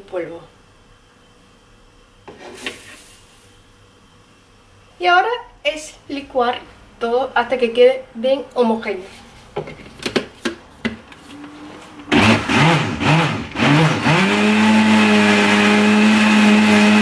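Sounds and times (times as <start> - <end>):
blender motor running: 12.1 - 17.0.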